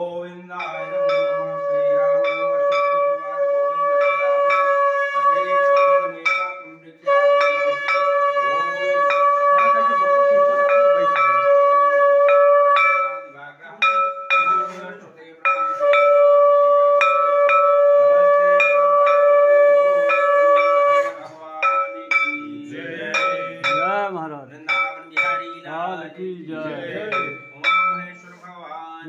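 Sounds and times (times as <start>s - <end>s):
hand bell ringing: 0.5s - 25.9s, 26.6s - 28.4s
conch shell blown: 0.7s - 13.3s, 15.5s - 21.3s.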